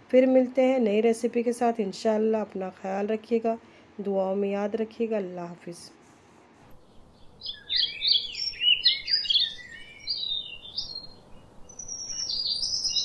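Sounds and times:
birds chirping: 0:06.7 - 0:13.0.

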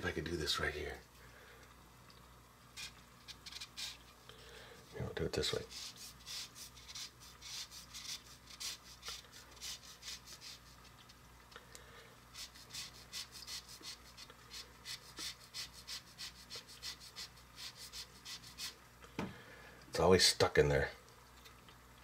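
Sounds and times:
lemon scraping on grater: 0:05.6 - 0:10.7.

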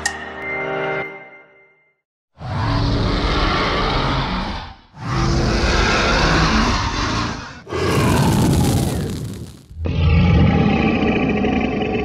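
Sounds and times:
dragon roaring: 0:02.4 - 0:12.0.

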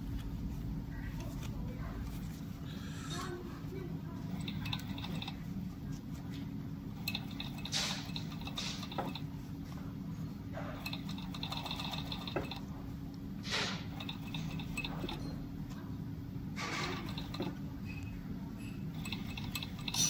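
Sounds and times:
sewing machine humming: 0:04.0 - 0:05.6, 0:06.8 - 0:09.5, 0:10.5 - 0:15.7, 0:16.5 - 0:18.0, 0:18.8 - 0:20.0.

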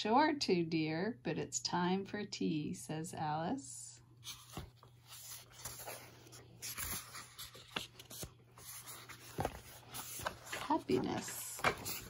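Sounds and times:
book pages turning: 0:04.2 - 0:12.0.

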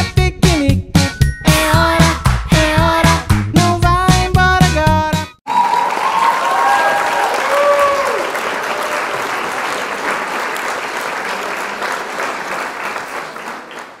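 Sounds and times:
voices whooping: 0:05.5 - 0:09.2
crowd applauding and cheering: 0:05.5 - 0:14.0.

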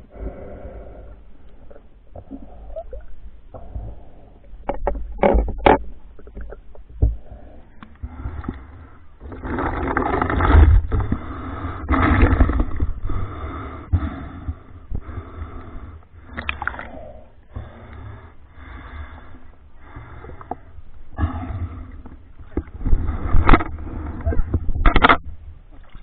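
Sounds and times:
water sloshing and splashing: 0:07.8 - 0:13.2, 0:16.3 - 0:17.0, 0:22.3 - 0:26.0.

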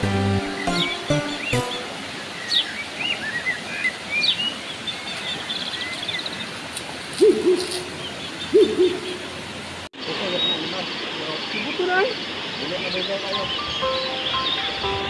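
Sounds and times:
small birds chirping and trilling: 0:00.0 - 0:06.6, 0:10.0 - 0:15.0
shallow river rushing: 0:00.0 - 0:07.2
low hooting bird call: 0:08.5 - 0:09.2.

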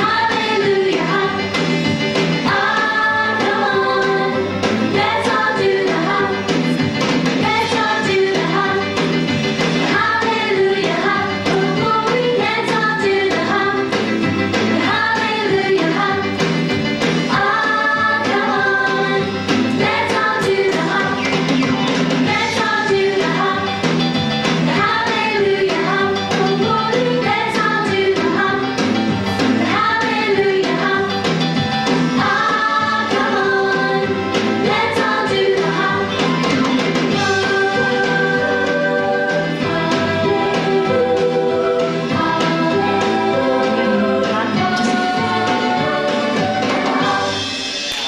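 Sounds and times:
steady beat and bass line: 0:15.9 - 0:25.0.

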